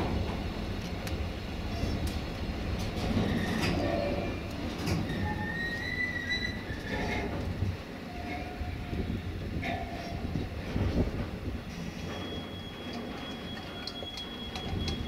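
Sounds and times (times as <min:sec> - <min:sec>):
train wheels rumbling on rail: 0:00.0 - 0:15.0
high wheel squeal: 0:12.0 - 0:15.0.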